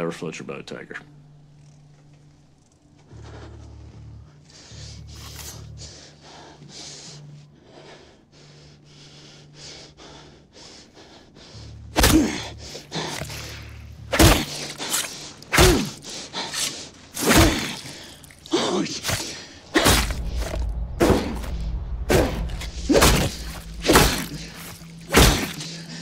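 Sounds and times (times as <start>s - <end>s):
heavy chopping blows: 12.0s - 26.0s
shaky breathing: 12.4s - 26.0s.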